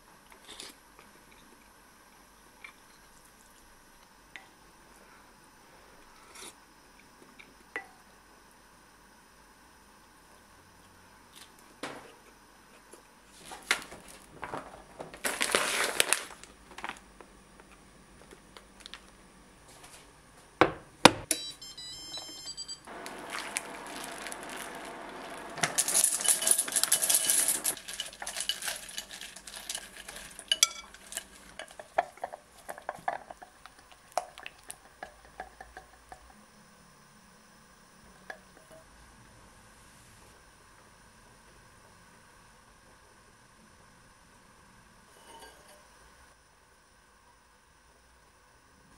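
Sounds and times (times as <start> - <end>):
wooden spoon stirring in glass bowl: 22.9 - 36.3
glass bowl and pot clinking: 23.2 - 33.4.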